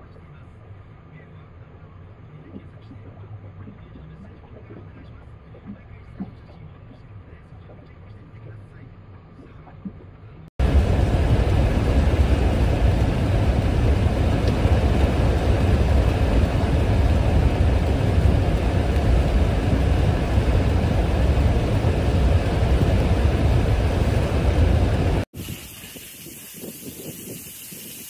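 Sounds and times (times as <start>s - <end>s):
wind rumbling on microphone: 9.4s - 28.0s
cars splashing through floodwater: 10.6s - 25.3s
torrential rain: 10.6s - 27.0s.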